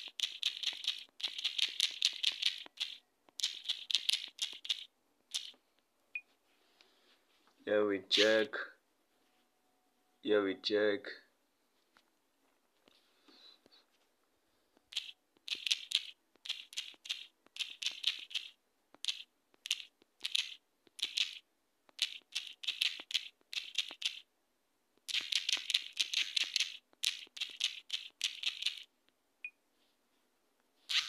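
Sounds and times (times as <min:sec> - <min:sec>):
taps on phone screen keyboard: 0:00.0 - 0:05.6, 0:14.8 - 0:24.2.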